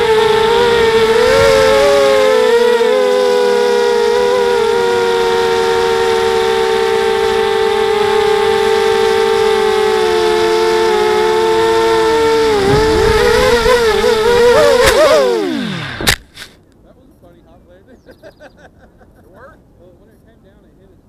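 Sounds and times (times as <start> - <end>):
drone motors whining: 0.0 - 16.5
wind rumble on microphone: 11.9 - 14.9.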